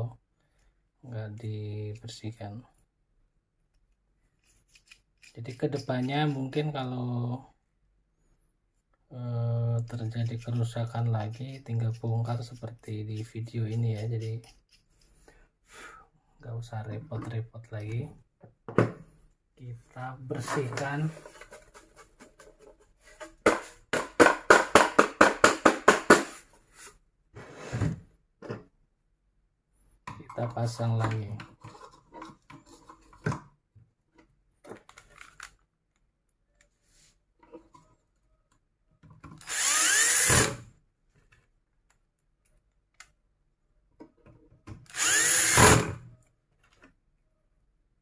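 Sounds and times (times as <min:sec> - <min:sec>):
cordless drill whining: 0:39.4 - 0:40.6, 0:44.9 - 0:46.0.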